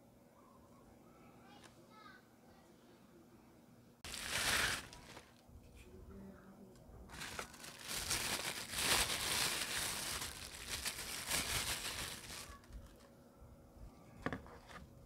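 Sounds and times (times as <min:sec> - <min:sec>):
plastic bag crinkling: 0:04.0 - 0:05.4, 0:07.1 - 0:13.0.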